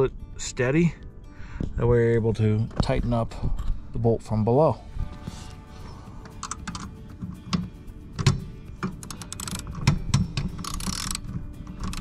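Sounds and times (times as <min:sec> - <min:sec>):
ratchet wrench clicking: 0:06.3 - 0:07.6, 0:08.2 - 0:12.0.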